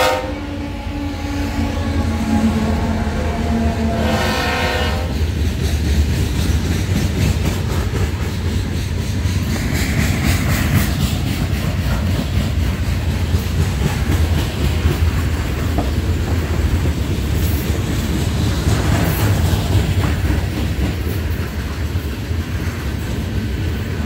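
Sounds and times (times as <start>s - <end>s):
locomotive horn: 0.0s - 5.3s
wheels clicking over rail joints: 5.0s - 24.0s.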